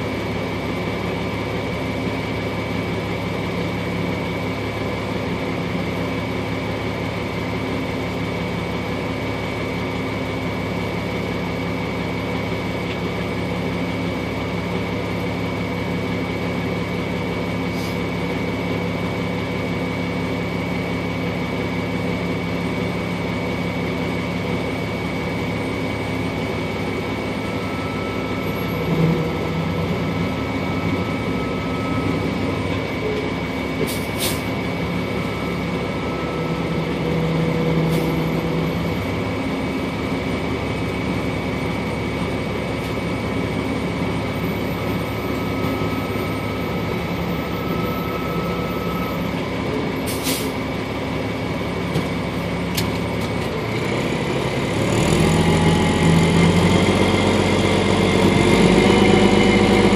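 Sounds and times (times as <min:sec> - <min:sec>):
truck engine running: 0:00.0 - 0:59.9.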